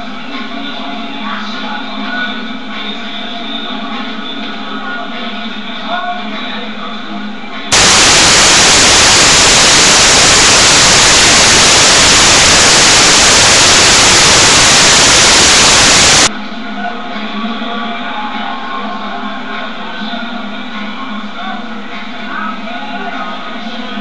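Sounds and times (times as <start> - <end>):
white-noise static hiss: 7.7 - 16.3.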